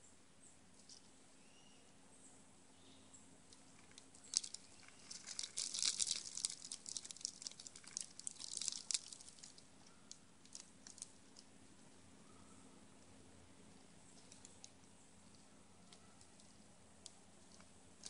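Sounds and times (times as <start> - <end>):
squirrel crunching seeds: 3.3 - 18.0.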